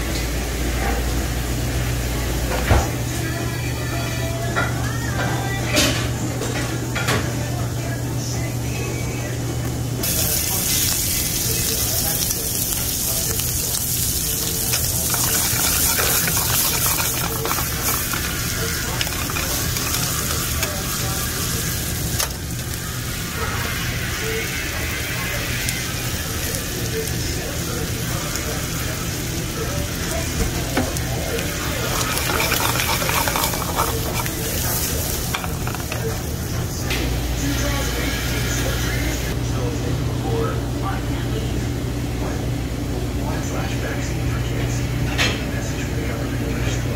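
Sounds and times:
shrimp sizzling in a pan: 10.0 - 36.5.

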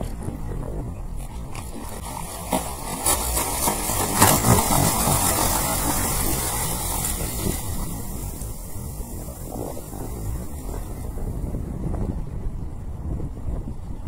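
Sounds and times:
fish thrashing and splashing: 1.6 - 8.0.

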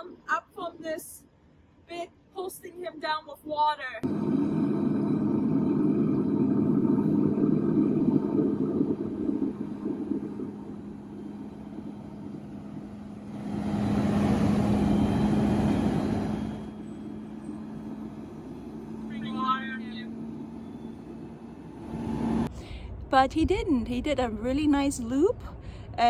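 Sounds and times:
fire engine pump running: 4.0 - 22.7.

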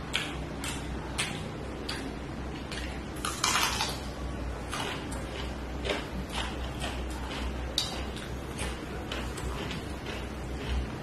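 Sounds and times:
low steady hum: 0.0 - 11.0
wet mouth clicks and smacks: 0.1 - 2.1
crunchy bite: 2.7 - 4.1.

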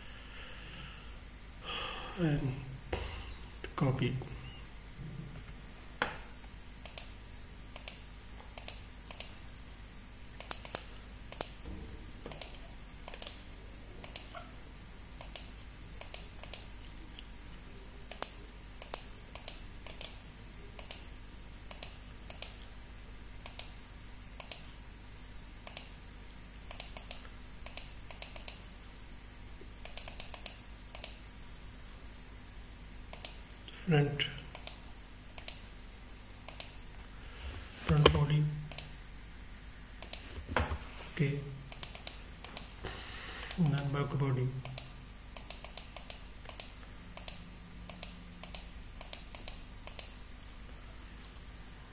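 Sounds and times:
mouse and keyboard clicking: 6.8 - 7.1, 8.6 - 9.4, 10.4 - 11.6, 12.3 - 13.4, 14.0 - 14.4, 18.1 - 20.2, 21.7 - 22.7, 24.4 - 24.7, 26.7 - 28.6, 29.8 - 31.2, 33.1 - 33.4, 35.4 - 35.6, 36.5 - 36.8, 40.0 - 40.3, 41.7 - 42.7, 44.6 - 50.1.

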